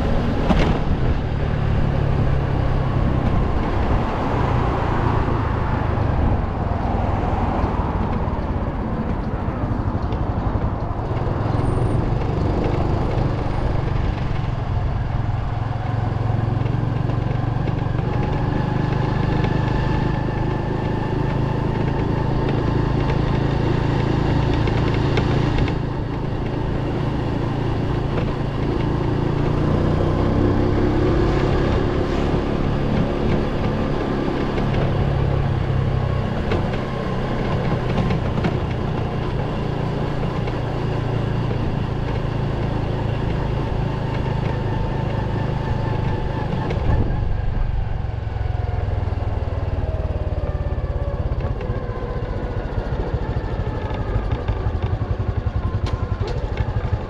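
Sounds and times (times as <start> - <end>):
motorcycle engine running: 7.6 - 57.0
wind rushing over microphone: 17.4 - 54.3.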